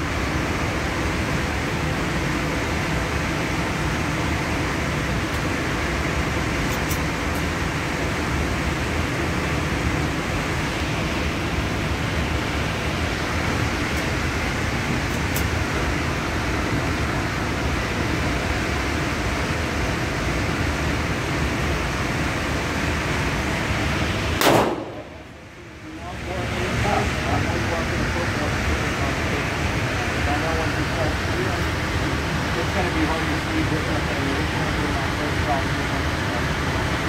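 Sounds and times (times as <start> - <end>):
ventilation rushing: 0.0 - 37.0
loud gunshot: 24.4 - 25.2.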